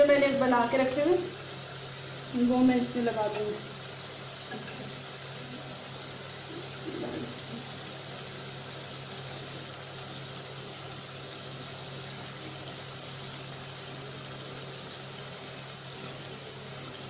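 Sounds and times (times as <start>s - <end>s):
food sizzling in pan: 0.0s - 17.0s
gas burner low hum: 0.0s - 17.0s.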